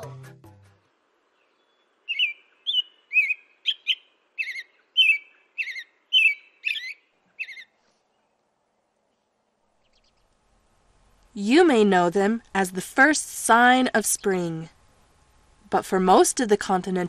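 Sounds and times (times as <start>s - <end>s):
robin singing whistled notes: 1.4s - 7.7s.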